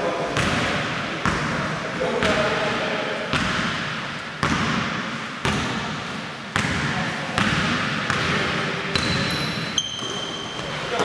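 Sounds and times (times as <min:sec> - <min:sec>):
basketball bouncing on wooden floor: 0:03.3 - 0:10.7.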